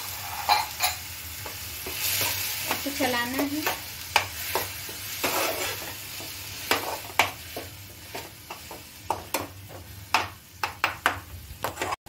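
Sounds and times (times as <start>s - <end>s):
metal spoon scraping pan: 0.0s - 1.1s, 1.8s - 7.4s, 11.6s - 12.0s
spoon clinking on pan: 0.4s - 1.1s.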